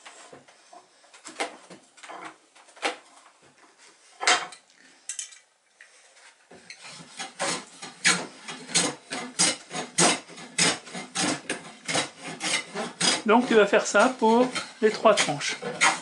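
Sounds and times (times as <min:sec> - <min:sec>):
hand plane shaving wood: 0:06.8 - 0:16.0.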